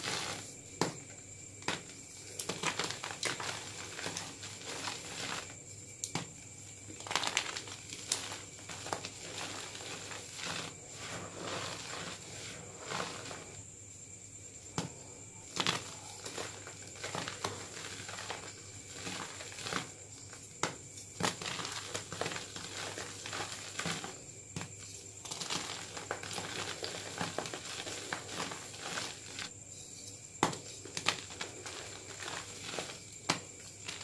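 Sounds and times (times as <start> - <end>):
chalk crunching in hands: 0.0 - 0.9, 1.6 - 5.6, 7.0 - 13.6, 15.5 - 20.0, 30.9 - 34.0.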